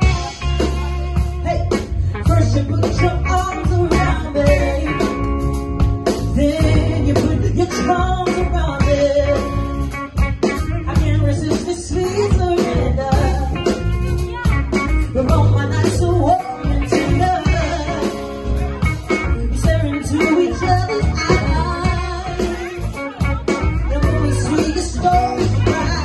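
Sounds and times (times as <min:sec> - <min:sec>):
drum kit beat: 0:00.0 - 0:26.0
electric bass line: 0:00.0 - 0:26.0
electric guitar: 0:00.0 - 0:26.0
woman singing lead: 0:00.0 - 0:26.0.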